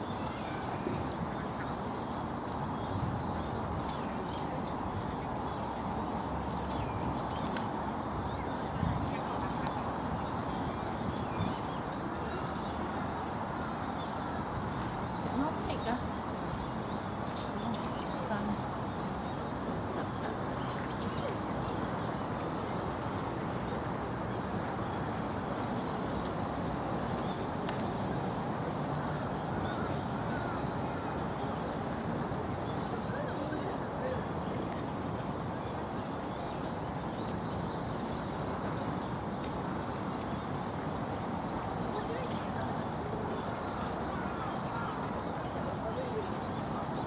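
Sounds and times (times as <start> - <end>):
steady background noise rush: 0.0 - 47.0
crowd murmur: 16.8 - 36.4, 41.0 - 47.0.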